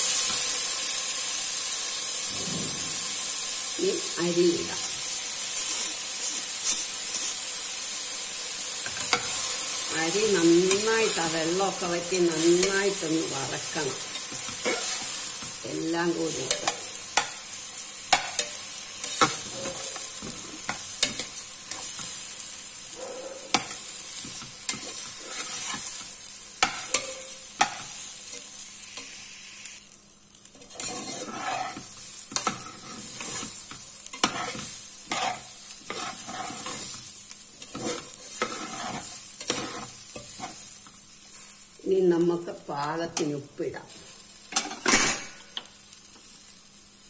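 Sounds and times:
frying sizzle: 0:00.0 - 0:47.0
metal spoon scraping a pot: 0:30.6 - 0:33.5, 0:34.2 - 0:37.0, 0:37.6 - 0:40.6.

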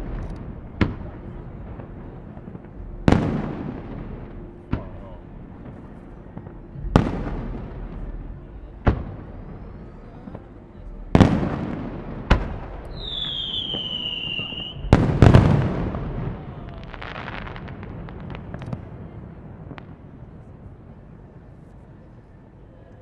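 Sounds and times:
fireworks bangs echoing: 0:00.0 - 0:21.6
firework crackling: 0:00.0 - 0:22.2
falling firework whistle: 0:12.9 - 0:15.6.

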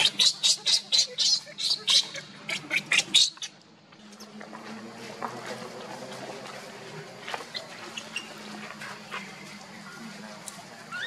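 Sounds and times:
baby monkey squealing: 0:00.0 - 0:03.5.

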